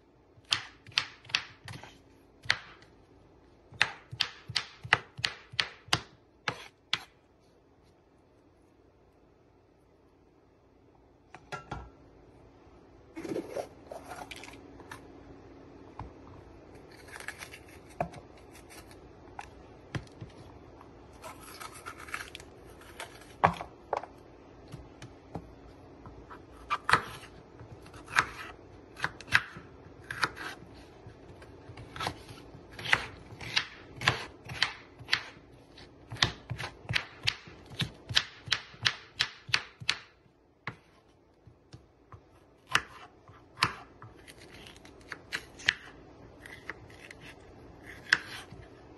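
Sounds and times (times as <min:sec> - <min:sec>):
knife chopping on wooden board: 0:03.7 - 0:07.1, 0:41.7 - 0:44.4.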